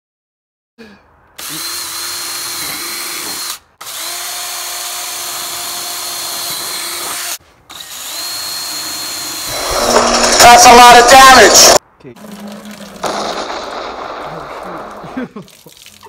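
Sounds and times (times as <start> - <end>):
power drill whining: 1.4 - 11.8.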